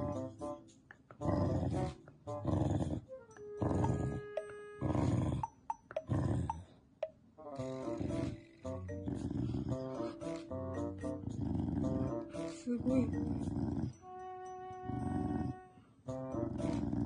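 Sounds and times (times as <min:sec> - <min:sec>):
dog growling angrily: 0:01.2 - 0:06.6, 0:07.6 - 0:10.4, 0:11.2 - 0:14.0, 0:15.0 - 0:15.5, 0:16.4 - 0:17.0.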